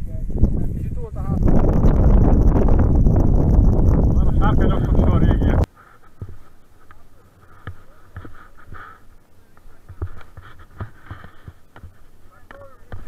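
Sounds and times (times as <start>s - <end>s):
low wind rumble: 0.0s - 5.7s
thumps and rustles on helmet camera: 5.7s - 9.0s, 9.7s - 13.0s.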